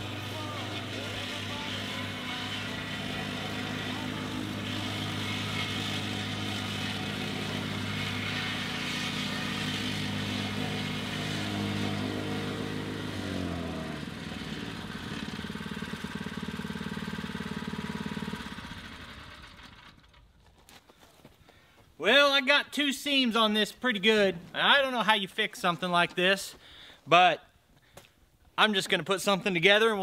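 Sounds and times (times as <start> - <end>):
plate compactor engine running: 0.0 - 20.4.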